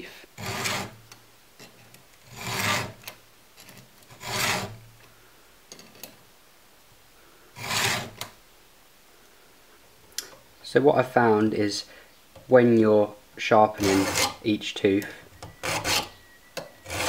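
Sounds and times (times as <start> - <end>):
file rasping on chain tooth: 0.4 - 1.0, 2.3 - 3.0, 4.1 - 4.8, 7.6 - 8.3, 13.8 - 14.4, 15.5 - 16.2, 16.8 - 17.0.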